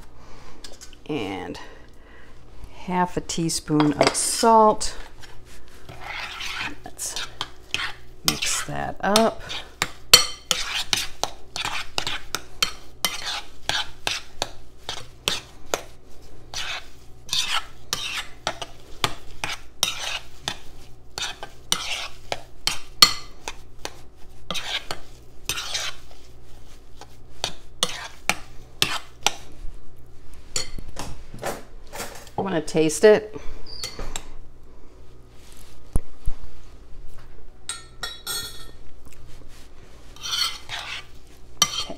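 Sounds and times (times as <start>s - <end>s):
spoon scraping glass bowl: 5.9s - 9.6s, 10.2s - 15.5s, 16.5s - 18.8s, 19.4s - 20.6s, 21.2s - 23.3s, 24.5s - 26.2s, 27.0s - 29.4s, 40.2s - 41.9s.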